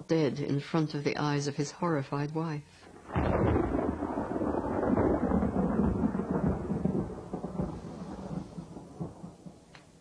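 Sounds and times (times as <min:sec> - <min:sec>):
thunder clap and rumble: 0:02.9 - 0:09.7.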